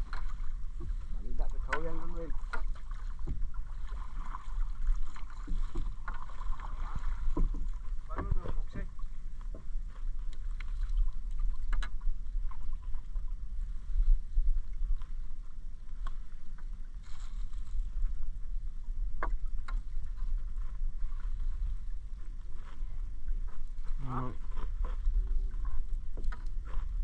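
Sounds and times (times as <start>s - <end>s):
net hauled from water splashing: 0.0s - 8.8s
knocks against hull: 7.2s - 8.9s.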